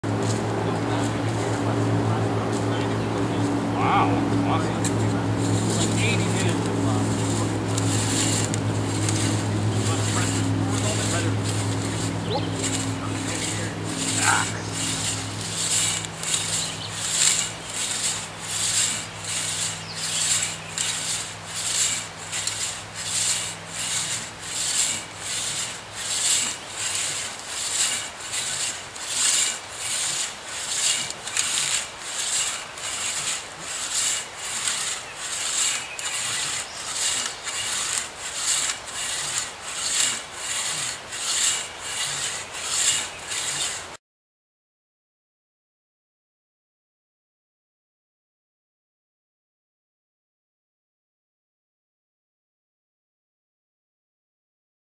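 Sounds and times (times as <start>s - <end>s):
crosscut saw rasping through wood: 0.0s - 44.0s.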